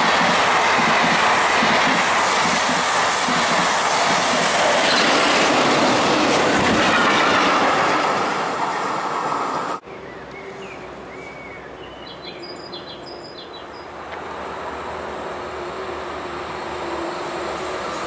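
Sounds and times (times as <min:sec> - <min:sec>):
passenger train passing: 0:00.0 - 0:09.8, 0:13.6 - 0:18.0
second train passing: 0:00.0 - 0:18.0.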